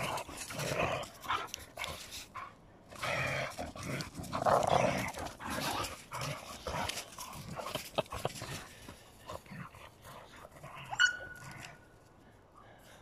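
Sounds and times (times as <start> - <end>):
dogs growling: 0.0 - 11.8.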